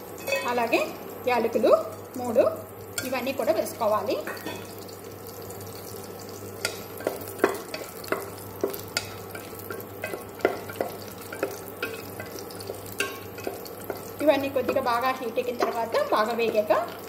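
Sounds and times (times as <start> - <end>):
spices frying in oil: 0.0 - 17.0
spatula knocking and scraping pot: 6.6 - 17.0.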